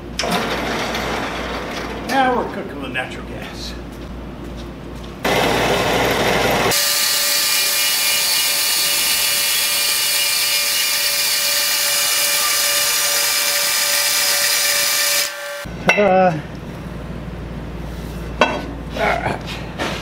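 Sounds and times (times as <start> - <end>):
loud harsh noise: 5.2 - 15.8
bandsaw cutting steel pipe: 5.3 - 15.7.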